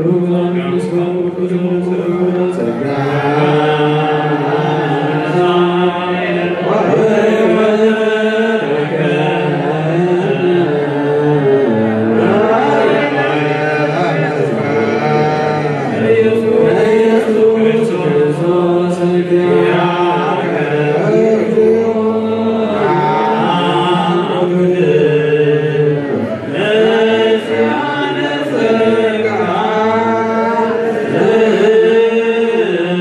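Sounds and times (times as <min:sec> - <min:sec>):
men chanting: 0:00.0 - 0:33.0.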